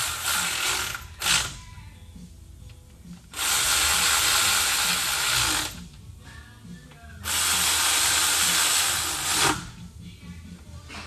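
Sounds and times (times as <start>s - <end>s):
cordless ratchet spinning: 0.0s - 1.6s, 3.4s - 5.8s, 7.2s - 9.7s.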